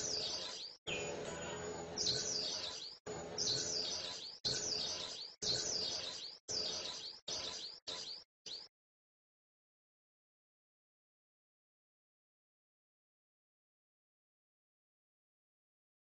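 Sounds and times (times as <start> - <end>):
bird singing whistled notes: 0.0 - 8.7.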